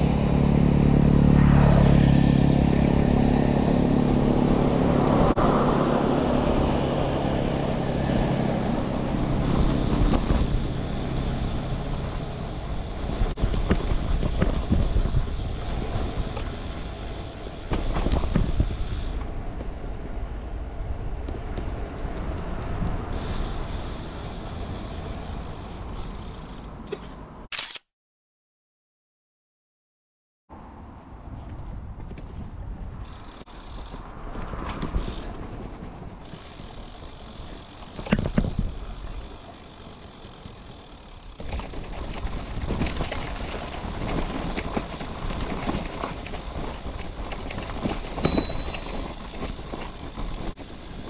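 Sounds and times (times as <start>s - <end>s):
bicycle tyres rumbling on asphalt: 0.0s - 26.8s, 31.3s - 51.0s
thin high steady tone: 48.2s - 49.2s.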